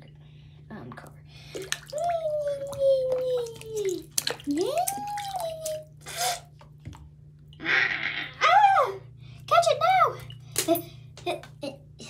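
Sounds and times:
water sloshing in a sink: 0.8s - 7.6s, 9.7s - 11.5s.

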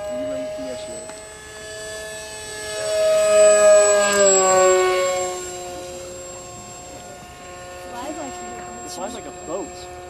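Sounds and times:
model airplane motor whining: 0.0s - 10.0s.

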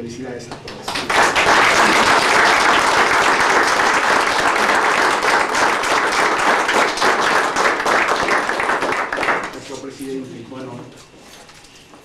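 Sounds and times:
people clapping: 0.5s - 10.1s.

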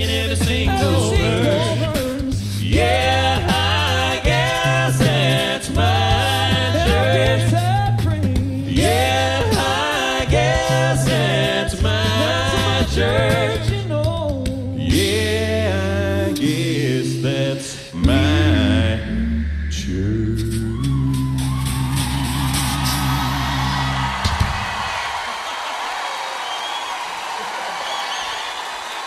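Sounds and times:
bass voice holding low notes: 0.0s - 9.6s, 11.9s - 24.3s
male group singing in harmony: 0.0s - 24.2s
mouth drum sounds: 0.0s - 24.6s.

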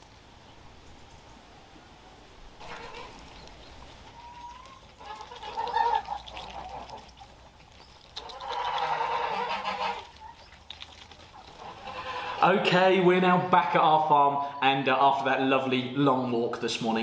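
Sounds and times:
farm animals calling: 2.6s - 15.0s.

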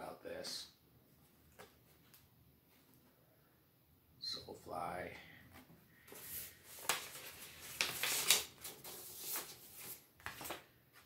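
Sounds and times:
paper sleeve rustling: 6.0s - 11.0s.

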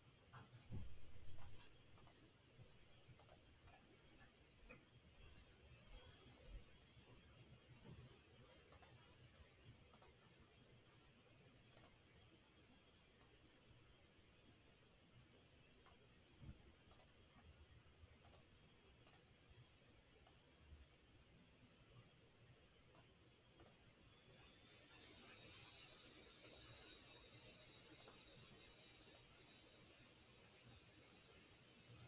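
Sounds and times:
computer mouse clicking: 1.2s - 2.2s, 3.1s - 3.4s, 8.7s - 9.0s, 9.9s - 10.2s, 11.8s - 12.0s, 16.9s - 17.2s, 18.2s - 19.3s, 22.9s - 23.8s, 26.4s - 26.9s, 27.9s - 28.3s.

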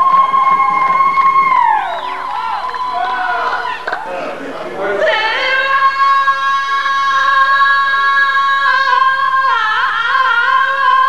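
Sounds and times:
woman singing a long high note: 5.0s - 11.0s.

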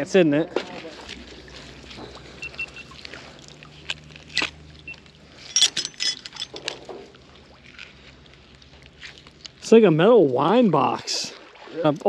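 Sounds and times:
low steady hum: 0.0s - 12.0s
metallic rattles and clinks: 5.4s - 6.9s.

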